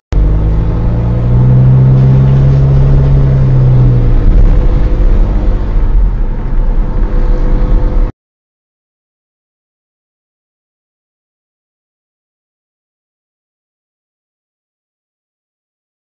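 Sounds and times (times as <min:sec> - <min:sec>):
steady low drone: 0:00.1 - 0:08.1
vehicle engine and road rumble: 0:00.1 - 0:08.1.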